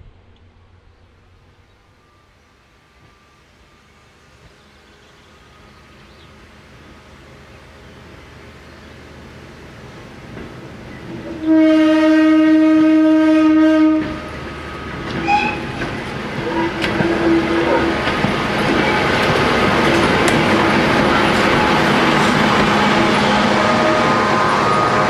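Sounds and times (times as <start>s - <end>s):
train wheels on rails: 1.1s - 25.0s
locomotive horn: 11.3s - 15.8s, 16.4s - 19.2s, 20.5s - 25.0s.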